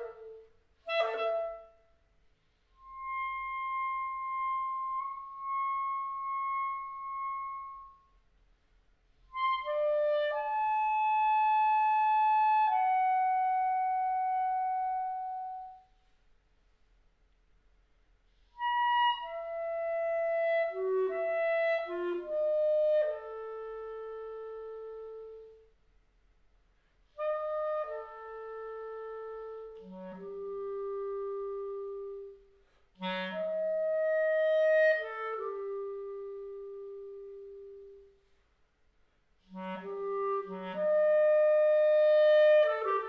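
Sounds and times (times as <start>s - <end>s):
solo clarinet: 0.0s - 8.4s, 9.0s - 16.3s, 18.2s - 25.8s, 26.8s - 38.6s, 39.2s - 43.0s.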